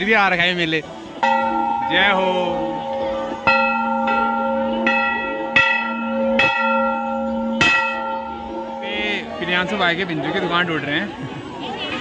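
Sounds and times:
temple bells ringing: 0:01.2 - 0:10.4.

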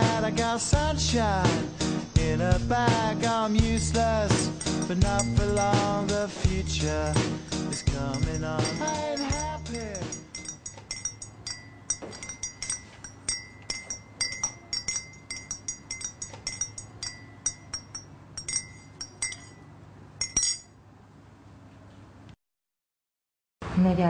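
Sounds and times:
teaspoon clinking in a mug: 0:03.6 - 0:19.6, 0:20.2 - 0:20.7.

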